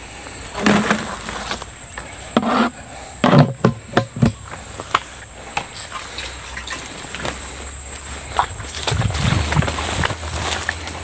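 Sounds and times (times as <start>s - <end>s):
insect trill: 0.0s - 11.0s
plastic sack rustling: 0.4s - 1.8s, 6.0s - 11.0s
knocks and thumps: 3.2s - 5.0s.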